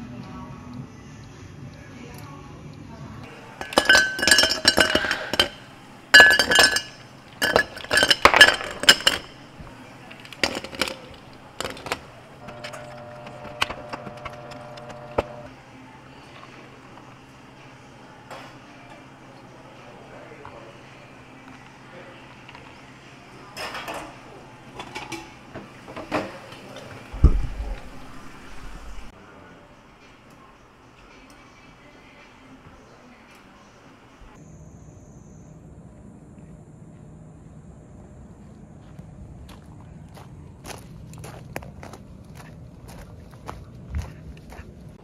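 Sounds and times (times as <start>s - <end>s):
ice cubes clinking in glasses: 3.4s - 9.6s, 10.2s - 15.5s
heavy low thump: 27.2s - 29.0s.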